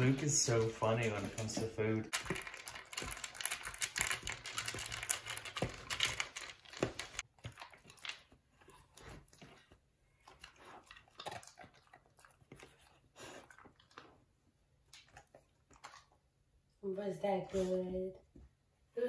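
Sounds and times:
kibble clicking in plastic bowl: 0:00.0 - 0:07.2
dog crunching kibble: 0:00.0 - 0:16.2.

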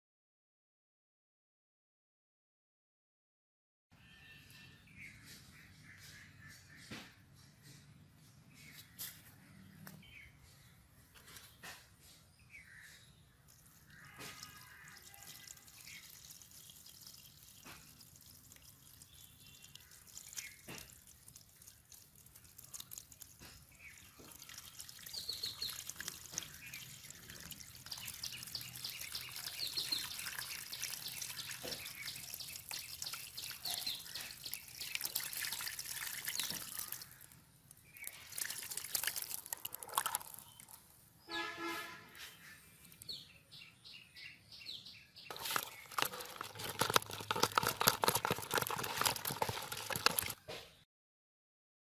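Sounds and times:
water splashing in a plastic basin: 0:13.4 - 0:40.9, 0:45.3 - 0:50.6
fish thrashing in water: 0:13.5 - 0:40.8, 0:45.3 - 0:50.5.

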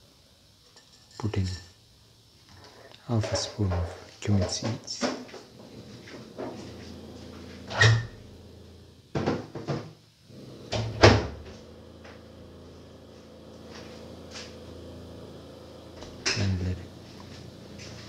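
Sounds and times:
knocks of objects being handled: 0:09.2 - 0:10.0.

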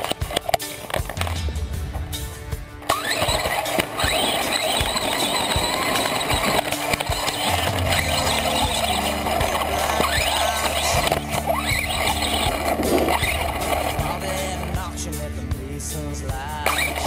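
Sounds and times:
tyres on ground: 0:00.0 - 0:17.0
electric motor whining: 0:02.9 - 0:15.0.

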